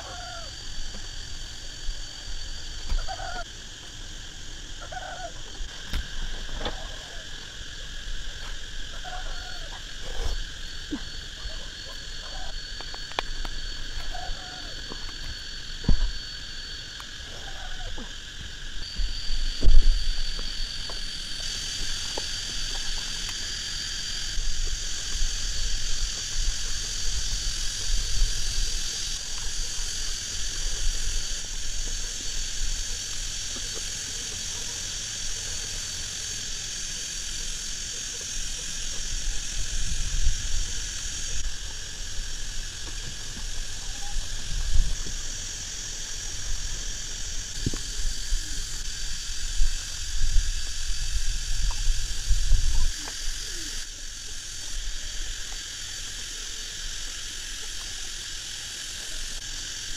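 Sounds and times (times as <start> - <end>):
forest insects chorus: 0.0 - 59.9
wind rumble on microphone: 42.2 - 45.3, 47.5 - 53.4.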